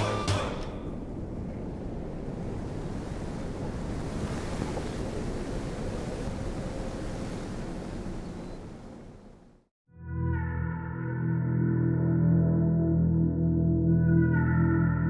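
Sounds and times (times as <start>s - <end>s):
rushing wind: 0.0s - 9.6s.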